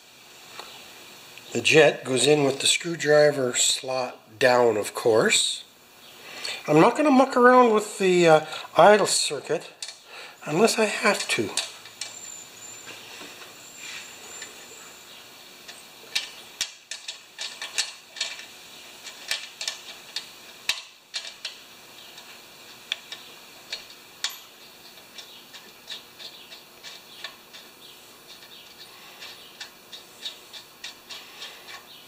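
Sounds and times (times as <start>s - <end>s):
metallic clicks of screwdriver and parts: 9.8s - 10.0s, 16.1s - 21.6s.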